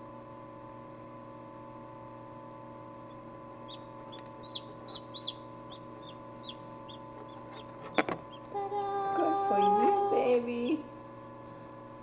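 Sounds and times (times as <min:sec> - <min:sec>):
steady hum: 0:00.0 - 0:12.0
chick peeping: 0:03.1 - 0:08.5.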